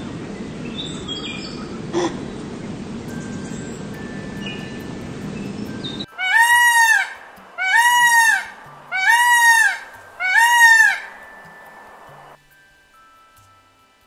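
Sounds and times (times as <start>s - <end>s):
peacock calling: 5.8s - 12.4s.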